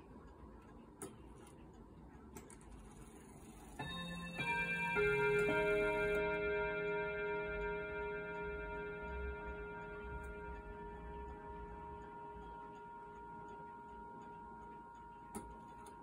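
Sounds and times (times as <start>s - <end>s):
mantel clock ticking: 0.0s - 16.0s
clock chime notes: 3.6s - 16.0s.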